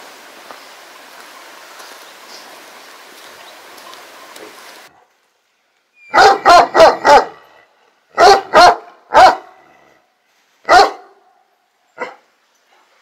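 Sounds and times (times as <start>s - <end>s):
large dog barking: 6.1s - 7.5s, 8.1s - 9.8s, 10.6s - 11.4s, 12.0s - 12.2s.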